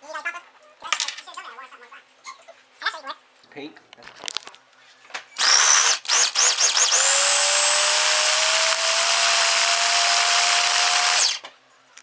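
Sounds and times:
food processor motor: 0:05.4 - 0:11.4.

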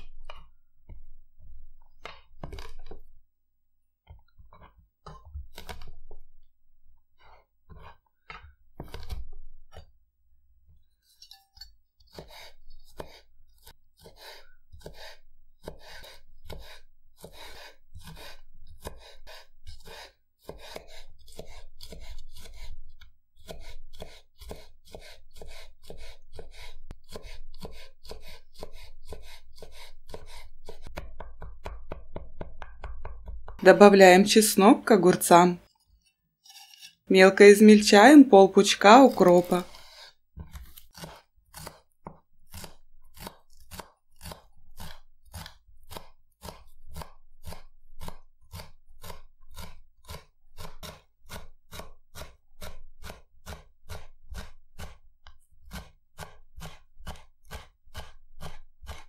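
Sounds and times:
knife chopping on wooden board: 0:07.2 - 0:09.9, 0:12.0 - 0:33.6, 0:38.9 - 0:59.0.

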